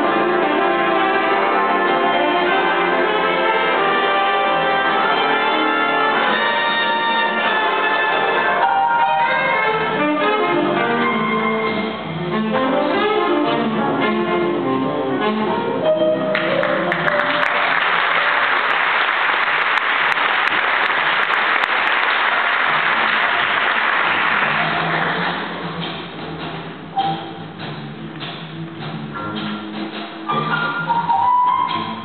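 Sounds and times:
jazz big band playing: 0:00.0 - 0:32.0
audience applauding: 0:16.3 - 0:25.6.

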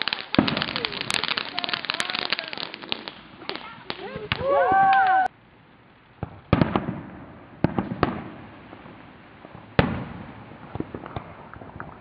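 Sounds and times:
fireworks bangs and pops: 0:00.0 - 0:05.3, 0:06.0 - 0:12.0
whistling fireworks: 0:00.0 - 0:05.3.

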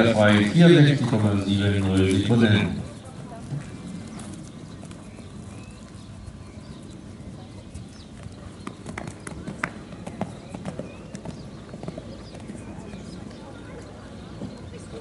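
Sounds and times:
horse hoofbeats on sand: 0:02.2 - 0:13.5
sharp hoof clicks: 0:03.1 - 0:13.4.

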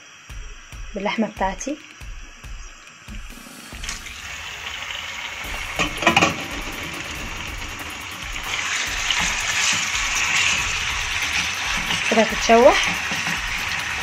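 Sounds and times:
meat sizzling in a frying pan: 0:03.1 - 0:14.0.

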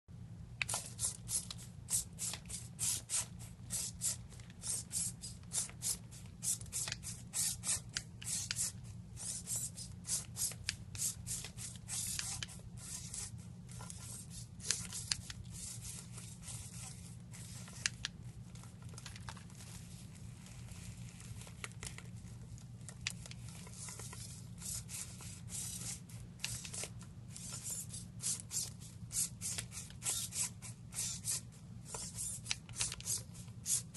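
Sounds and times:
steady low hum: 0:00.1 - 0:33.9
robot servo motors buzzing: 0:27.4 - 0:33.9.

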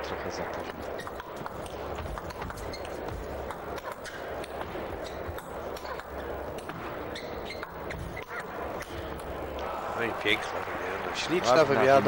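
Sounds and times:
hall background noise: 0:00.0 - 0:12.0
table tennis ball clicking: 0:00.8 - 0:09.4.

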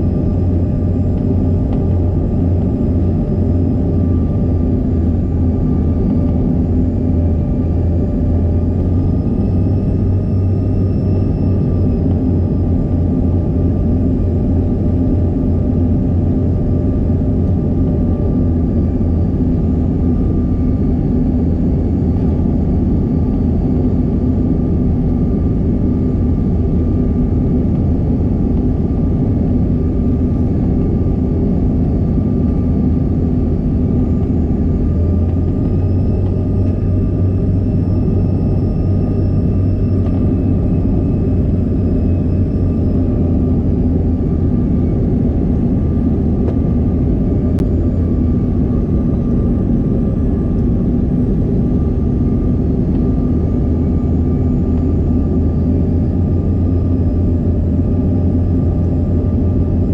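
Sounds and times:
airflow rumble in jet cabin: 0:00.0 - 0:59.9
jet engine whine: 0:00.0 - 0:59.9.

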